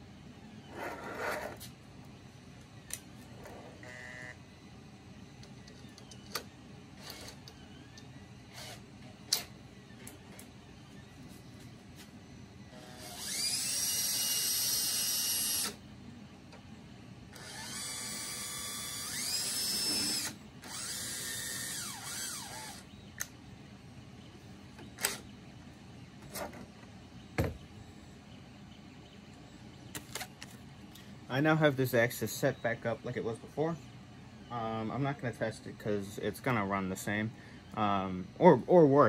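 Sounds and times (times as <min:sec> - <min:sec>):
cordless drill whining: 0:12.8 - 0:15.8, 0:17.3 - 0:22.9
parts being handled knocks: 0:27.4 - 0:27.7.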